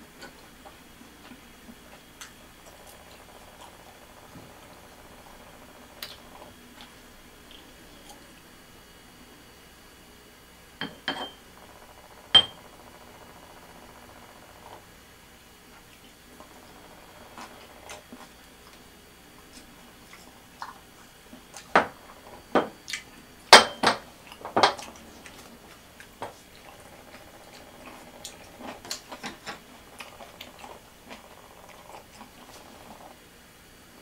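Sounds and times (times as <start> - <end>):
ceramic lid clinking: 10.8 - 11.4.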